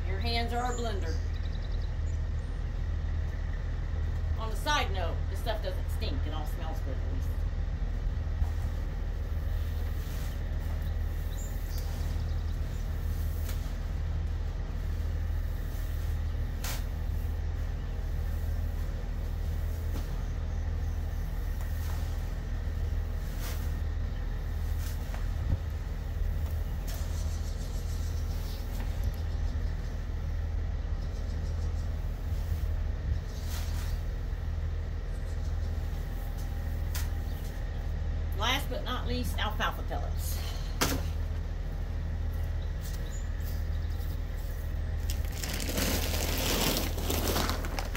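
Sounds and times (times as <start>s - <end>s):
low rumble: 0.0s - 47.9s
hands stirring dry grain: 43.4s - 47.9s.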